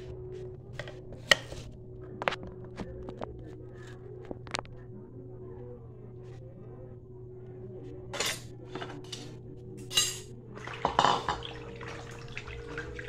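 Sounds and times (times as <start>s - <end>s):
low hum: 0.0s - 13.0s
bowl and basin clinking: 8.2s - 13.0s.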